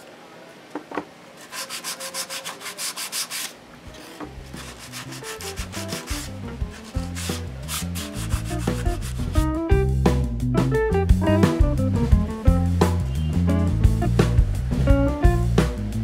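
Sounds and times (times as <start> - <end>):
hand sanding wood: 1.4 - 9.5
music with bass line: 5.6 - 16.0.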